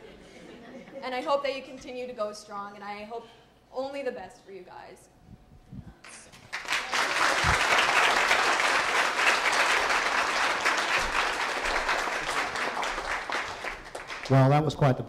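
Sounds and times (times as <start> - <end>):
crowd applauding: 6.4 - 14.9.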